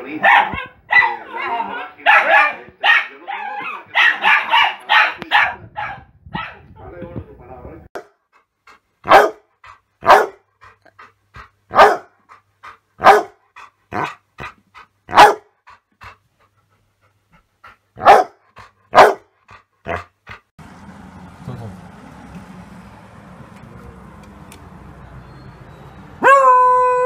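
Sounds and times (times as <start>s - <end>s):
dog barking: 0.2s - 6.7s, 9.0s - 10.4s, 11.7s - 12.2s, 13.0s - 14.2s, 15.1s - 15.5s, 18.0s - 19.3s, 26.2s - 27.0s
dog huffing and panting: 8.3s - 20.5s.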